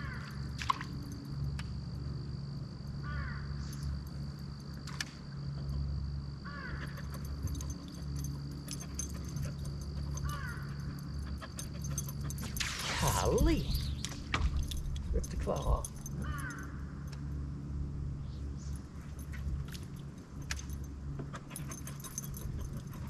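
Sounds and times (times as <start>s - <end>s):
low hum: 0.0s - 23.0s
faint high whine: 0.3s - 23.0s.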